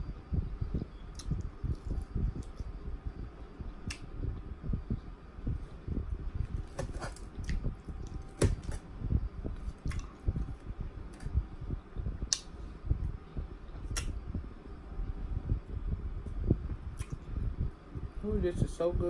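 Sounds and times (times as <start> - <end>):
wet chewing: 9.6 - 10.6.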